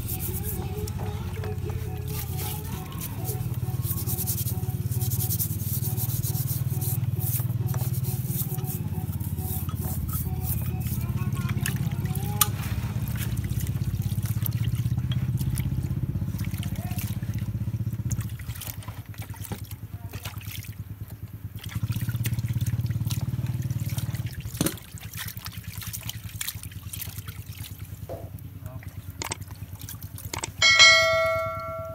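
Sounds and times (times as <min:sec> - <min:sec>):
hands scrubbing metal parts: 0:00.0 - 0:12.6, 0:30.2 - 0:31.9
low steady hum: 0:00.0 - 0:31.9
liquid sloshing and splashing in tray: 0:11.0 - 0:20.9, 0:21.5 - 0:28.1.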